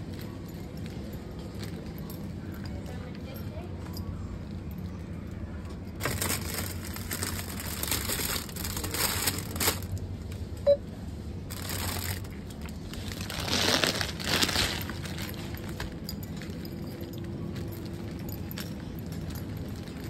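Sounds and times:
plastic bags crinkling: 0:06.0 - 0:10.0, 0:11.5 - 0:20.0.

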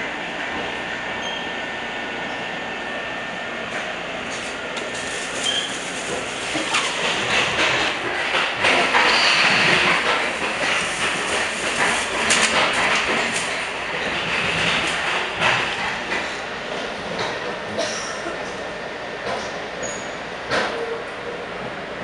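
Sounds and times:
train car rumble and hiss: 0:00.0 - 0:22.0
wheels clicking over rail joints: 0:04.8 - 0:16.4.

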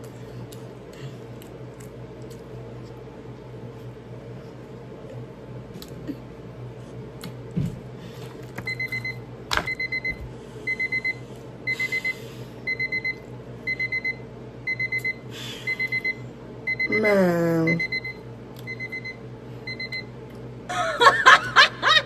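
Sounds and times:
timer alarm high beeps: 0:08.7 - 0:17.1, 0:17.7 - 0:20.1.

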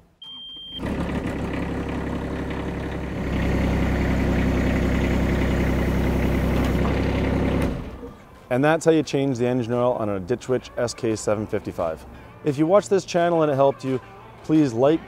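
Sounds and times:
short high beep: 0:00.2 - 0:00.8
skid steer engine running: 0:00.8 - 0:08.2.

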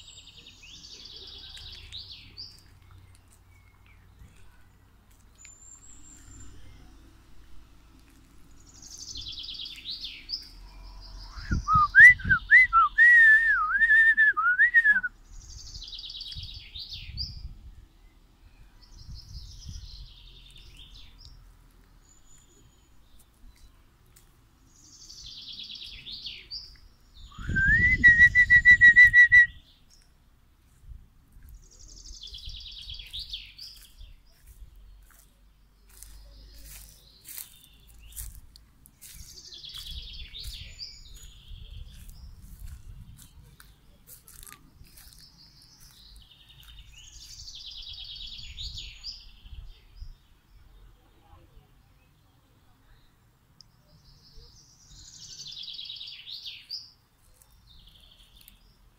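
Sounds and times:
songbird singing: 0:00.0 - 0:58.9
person whistling: 0:11.4 - 0:15.1, 0:27.4 - 0:29.5.

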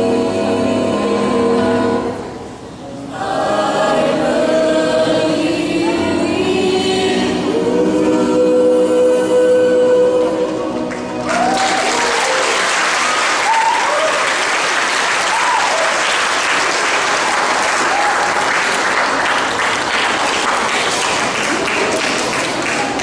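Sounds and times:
choir singing: 0:00.0 - 0:11.5
audience applause: 0:10.9 - 0:23.0.

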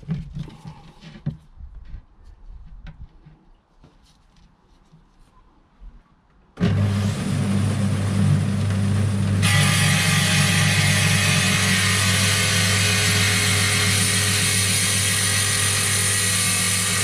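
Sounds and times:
stone saw motor humming: 0:06.6 - 0:17.0.

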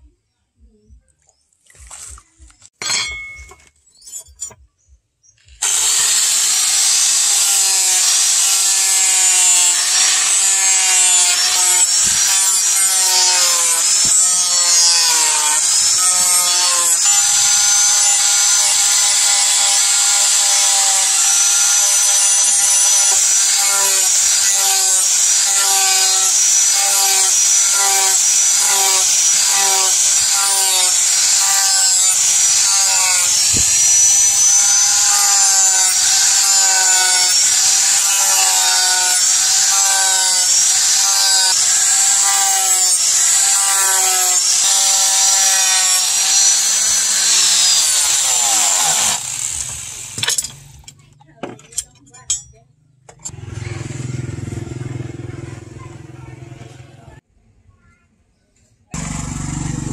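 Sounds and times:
water splashing and dripping: 0:01.2 - 0:02.5
angle grinder sanding steel: 0:02.8 - 0:04.6, 0:05.6 - 0:50.9.

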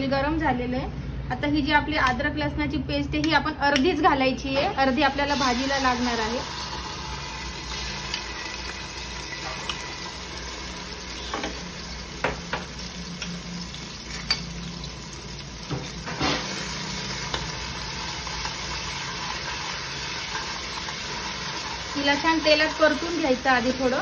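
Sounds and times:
paste sizzling in hot oil: 0:04.8 - 0:24.0.

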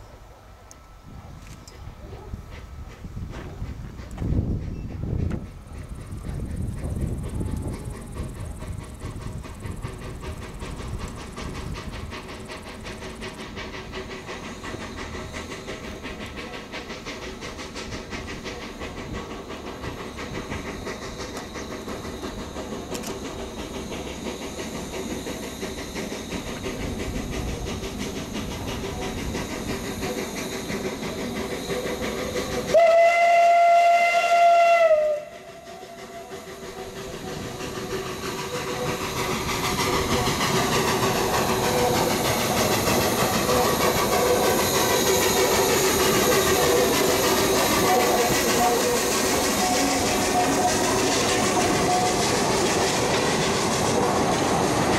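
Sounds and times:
steam locomotive approaching: 0:00.0 - 0:54.9
steam whistle blast: 0:32.6 - 0:37.5, 0:45.5 - 0:52.6.

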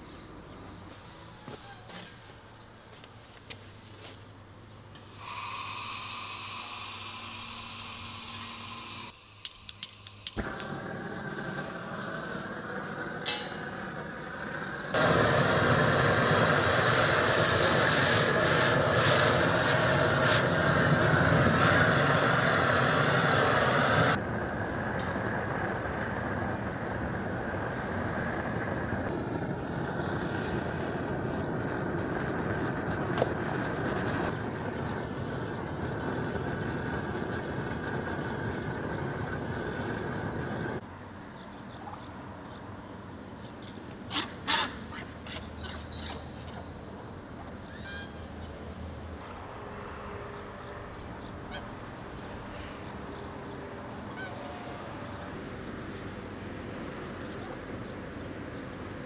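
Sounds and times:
torch igniter clicks: 0:05.0 - 0:10.8
gas hissing with high whistle: 0:05.1 - 0:13.4, 0:14.6 - 0:24.2
burner flame rushing: 0:05.1 - 0:40.8.

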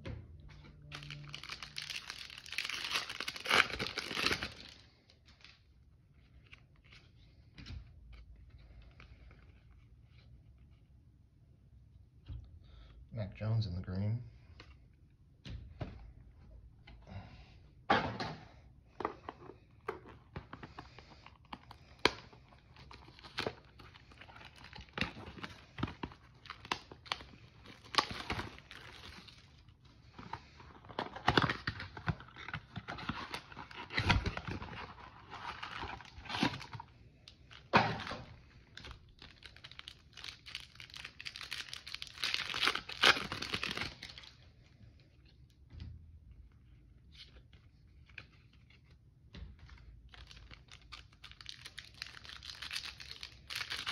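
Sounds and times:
packaging crinkling: 0:00.9 - 0:05.6, 0:20.6 - 0:44.4, 0:49.8 - 0:53.9.

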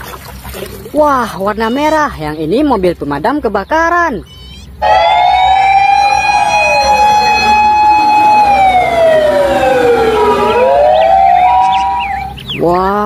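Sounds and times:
fire truck siren wailing: 0:04.8 - 0:12.4.

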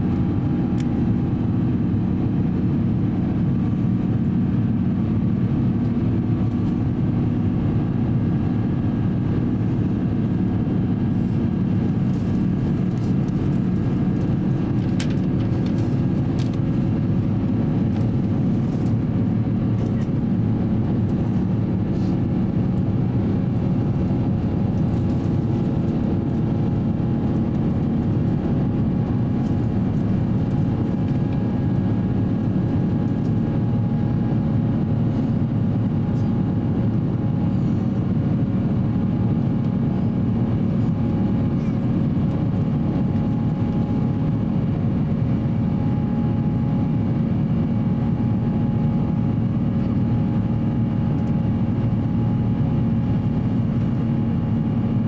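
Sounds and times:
airliner cabin engine drone: 0:00.0 - 0:55.0
faint clicks in cabin: 0:51.2 - 0:51.4.

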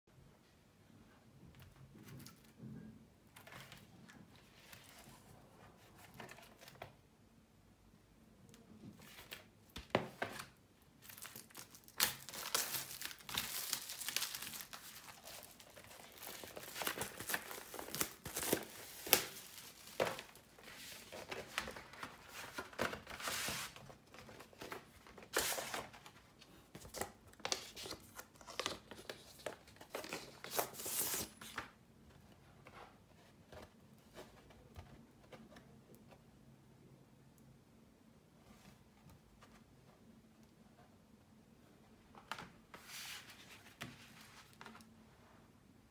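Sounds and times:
plastic and paper packaging crinkling: 0:10.1 - 0:31.7.

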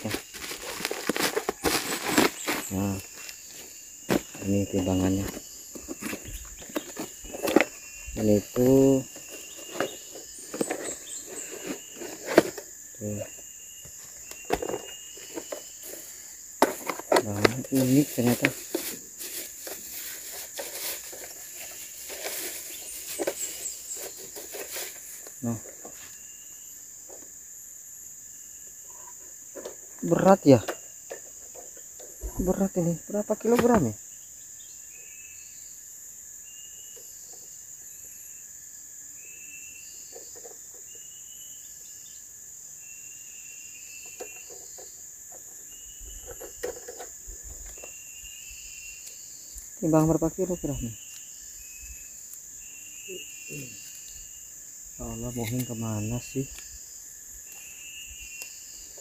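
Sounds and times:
plastic packaging crinkling: 0:00.0 - 0:03.4, 0:16.7 - 0:25.3
cricket chirps: 0:00.0 - 0:59.0
high-pitched insect drone: 0:00.0 - 0:59.0.

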